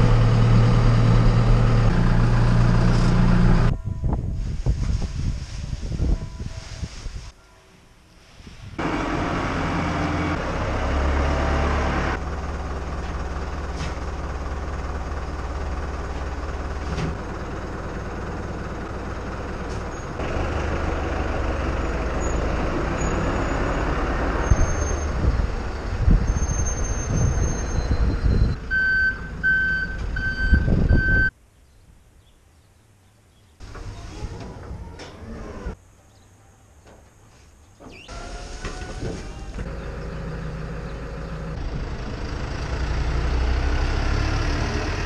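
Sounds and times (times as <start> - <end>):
tractor diesel engine running: 0.0 - 3.8, 8.8 - 31.1, 38.1 - 45.0
reversing alarm beeping: 27.7 - 31.3.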